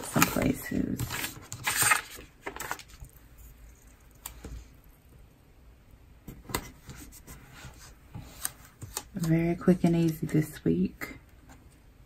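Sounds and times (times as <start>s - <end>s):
paper and sticker rustling: 0.0s - 3.2s.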